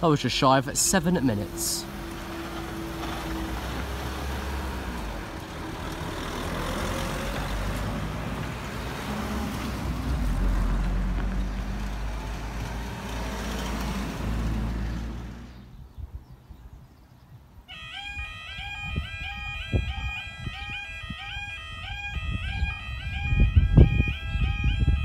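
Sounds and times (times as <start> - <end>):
vehicles crossing railway crossing: 0.0 - 16.1, 17.5 - 25.0.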